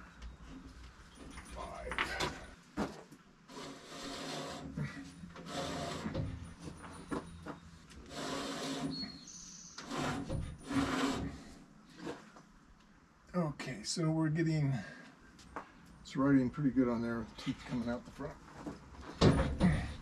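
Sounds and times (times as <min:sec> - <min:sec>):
band blade scraping through guides: 0:09.8 - 0:12.2.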